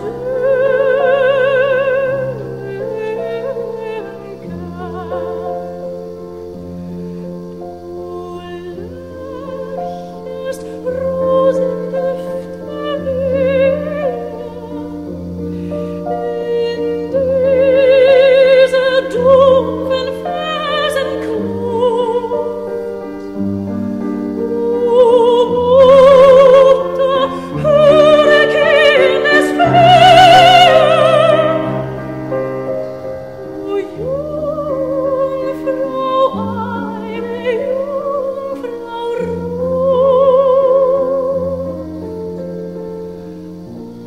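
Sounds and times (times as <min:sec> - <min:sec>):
operatic singing: 0:07.8 - 0:23.3, 0:24.4 - 0:41.8.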